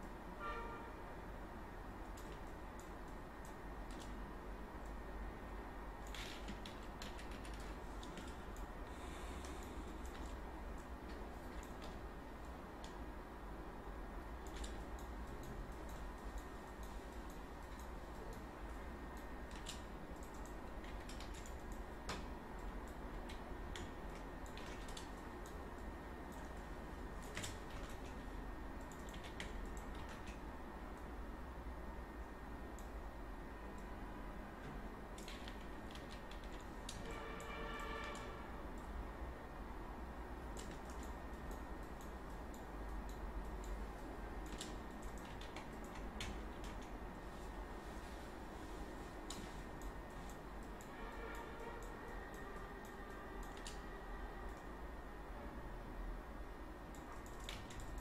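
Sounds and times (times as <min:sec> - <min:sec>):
faint steady hiss: 0:00.0 - 0:58.0
steady low hum: 0:00.0 - 0:58.0
keyboard and mouse clicks: 0:02.0 - 0:04.2, 0:06.0 - 0:13.0, 0:14.4 - 0:26.6, 0:27.2 - 0:31.1, 0:34.6 - 0:38.9, 0:40.4 - 0:47.0, 0:49.2 - 0:54.7, 0:56.9 - 0:58.0.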